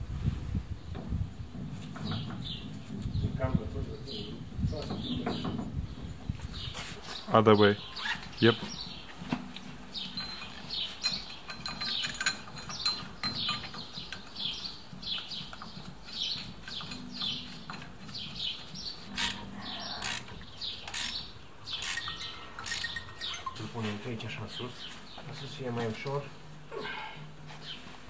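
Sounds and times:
small birds chirping: 0:01.8 - 0:28.0
sharp metal clicks: 0:19.1 - 0:23.6.

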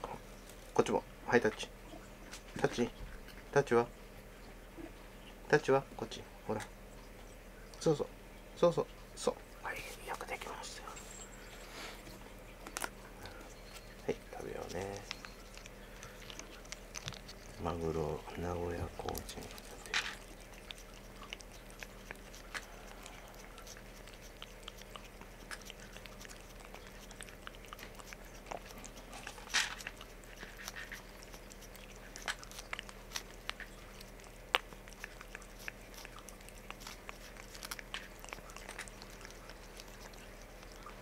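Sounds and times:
cat licking and biting paste: 0:12.7 - 0:41.0.

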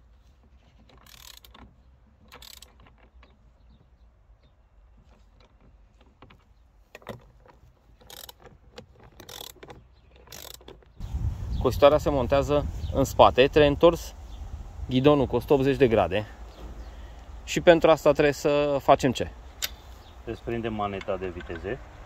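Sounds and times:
hand tools clicking and clattering: 0:00.5 - 0:03.9, 0:05.0 - 0:11.0, 0:20.9 - 0:21.8.

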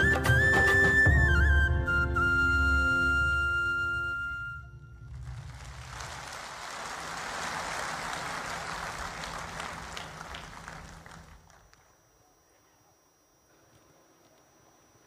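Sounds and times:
audience applauding: 0:05.1 - 0:11.9.

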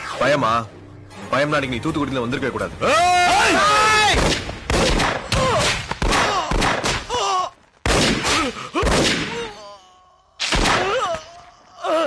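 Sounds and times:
men crying out and groaning: 0:08.4 - 0:12.0.

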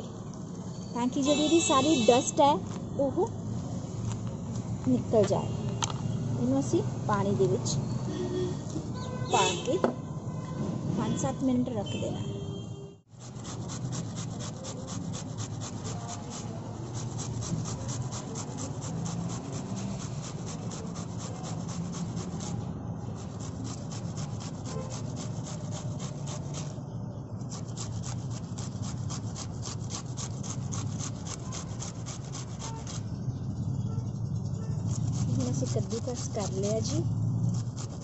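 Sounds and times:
cauliflower grated on metal grater: 0:13.2 - 0:26.8, 0:27.4 - 0:33.2, 0:34.6 - 0:38.0.

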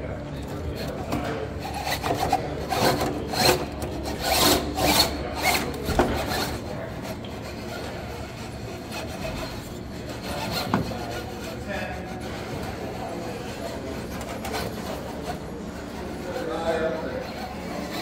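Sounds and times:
toy car grinding over rock: 0:01.7 - 0:06.5.

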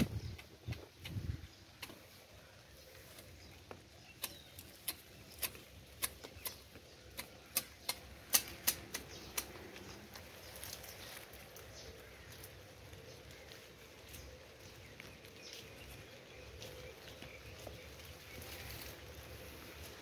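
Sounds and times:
hedge shears snipping: 0:04.1 - 0:09.8.

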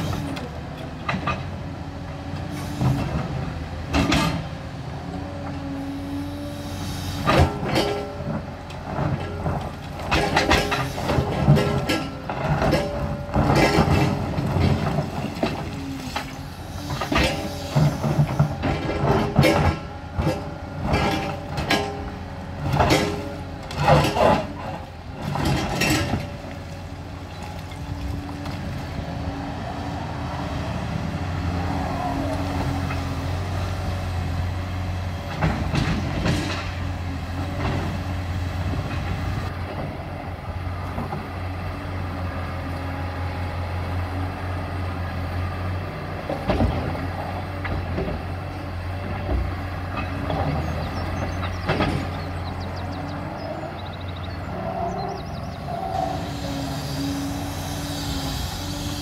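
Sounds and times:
diesel engine and hydraulics: 0:00.0 - 0:59.0
excavator bucket scraping rubble: 0:07.1 - 0:29.2, 0:34.8 - 0:40.0, 0:46.2 - 0:59.0.

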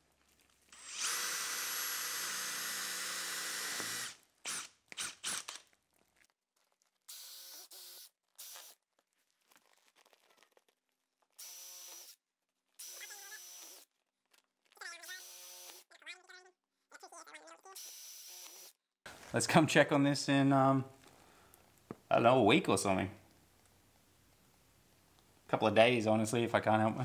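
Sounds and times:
cordless drill drilling: 0:00.7 - 0:05.6, 0:07.1 - 0:08.8, 0:11.4 - 0:12.2, 0:12.8 - 0:13.9, 0:15.0 - 0:15.9, 0:17.8 - 0:18.8.

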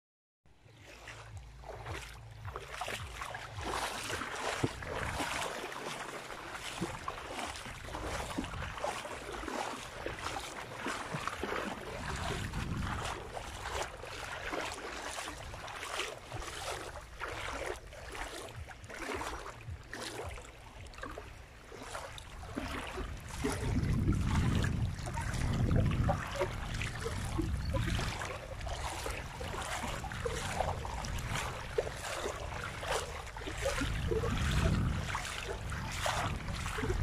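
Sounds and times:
wavelets lapping in shallow water: 0:00.6 - 0:37.0
wind rumbling on microphone: 0:00.7 - 0:37.0.

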